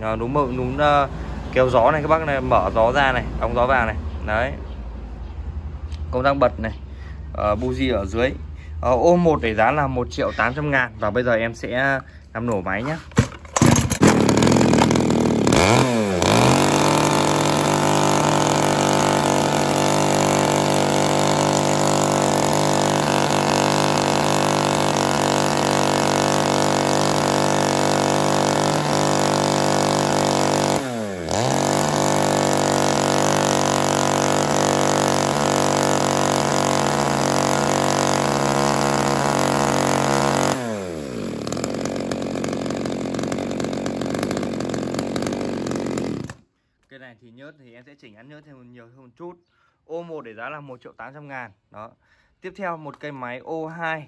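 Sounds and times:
chainsaw running: 12.8s - 46.4s.

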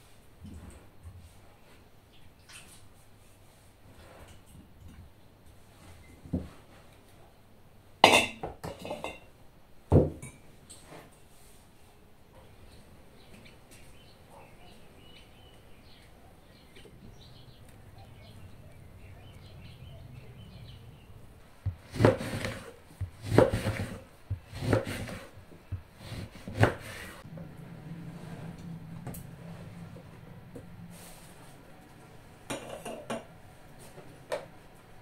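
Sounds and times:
faint bird chirping: 12.4s - 21.4s
knife chopping on wooden board: 21.6s - 27.1s.

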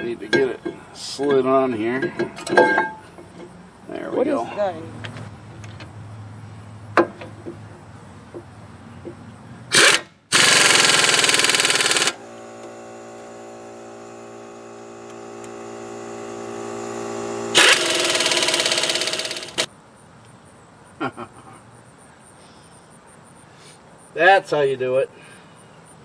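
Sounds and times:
air ratchet clicking: 9.7s - 13.3s, 15.0s - 19.7s
steady hum: 10.3s - 19.7s.

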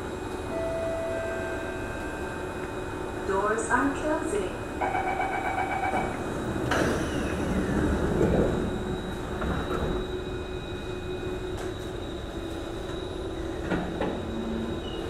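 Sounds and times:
train wheels rumbling on rails: 1.2s - 15.0s
train doors knocking shut: 5.7s - 8.5s.

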